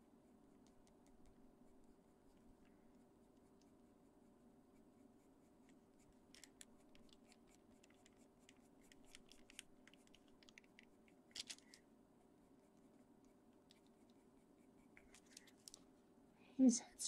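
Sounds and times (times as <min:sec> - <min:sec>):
low steady hum: 0:00.0 - 0:17.0
pencil scratching on paper: 0:01.0 - 0:10.2, 0:12.5 - 0:15.5.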